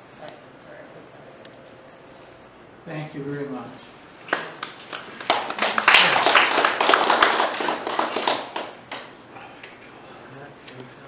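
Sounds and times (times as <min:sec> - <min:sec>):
people clapping: 0:04.2 - 0:09.7.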